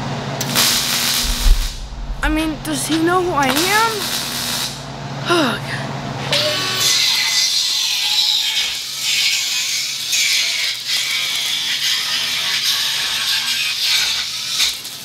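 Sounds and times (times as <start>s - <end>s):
welder arc crackling and sizzling: 0.4s - 4.8s.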